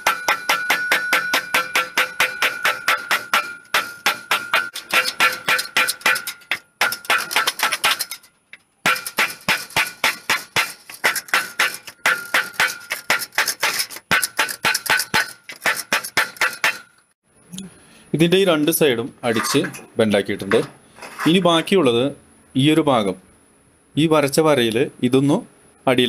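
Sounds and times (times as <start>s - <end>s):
wooden batten beating metal sheet: 0.0s - 17.0s.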